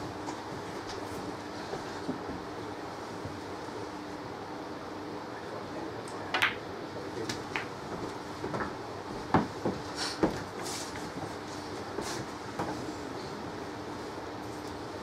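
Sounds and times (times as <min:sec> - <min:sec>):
low room hum: 0:00.0 - 0:15.0
snooker balls clicking: 0:06.3 - 0:06.7.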